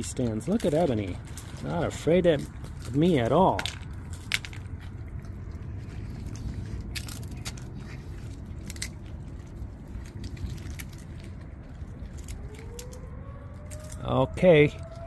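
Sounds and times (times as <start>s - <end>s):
raccoon crunching dry kibble: 0.0s - 15.0s
distant siren winding up: 11.8s - 15.0s.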